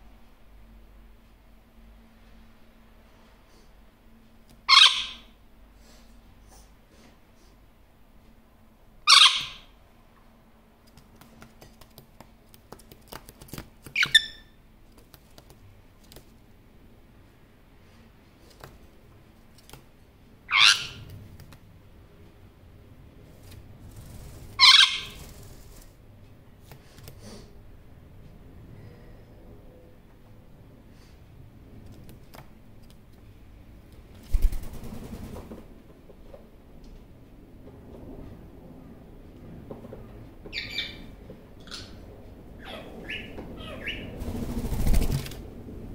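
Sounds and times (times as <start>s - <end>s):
parrot call with falling notes: 4.7s - 5.3s, 9.1s - 9.7s, 24.6s - 25.2s
parrot squawking: 4.7s - 5.3s, 9.1s - 9.7s, 14.0s - 14.6s, 20.5s - 21.1s, 24.6s - 25.2s, 42.6s - 44.1s
bird wing flaps: 10.9s - 14.2s, 23.3s - 26.0s, 34.2s - 35.8s, 44.1s - 45.6s.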